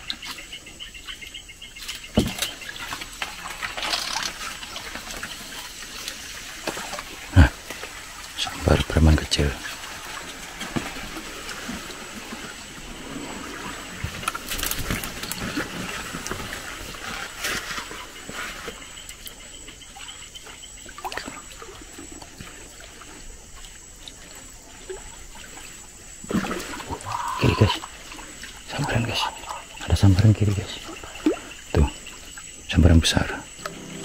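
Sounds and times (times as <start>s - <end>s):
water trickling and splashing: 0.0s - 34.0s.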